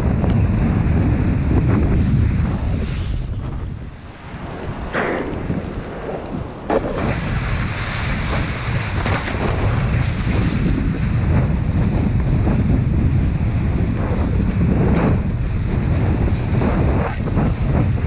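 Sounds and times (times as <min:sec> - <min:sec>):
wind buffeting microphone: 0:00.0 - 0:18.0
board splashing: 0:06.5 - 0:11.1.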